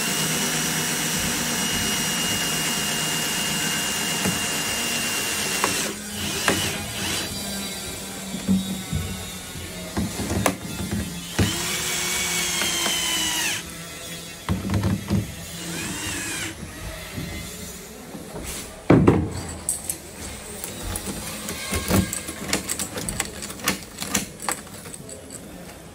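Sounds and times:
cordless drill driving screws: 0:00.0 - 0:07.5, 0:10.0 - 0:14.4, 0:15.4 - 0:16.7.

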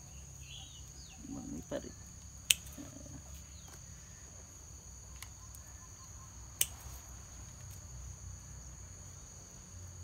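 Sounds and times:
insects chirring: 0:00.0 - 0:10.0
scissors snipping leaves: 0:02.4 - 0:02.9, 0:06.6 - 0:07.0.

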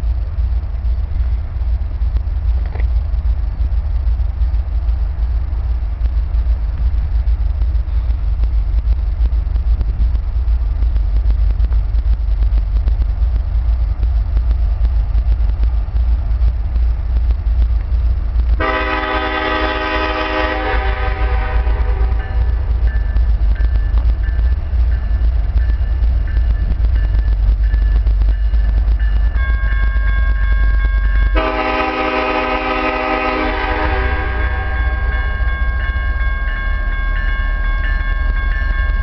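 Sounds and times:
low rumble: 0:00.0 - 0:39.0
locomotive air horn: 0:18.6 - 0:22.6, 0:31.4 - 0:35.3.

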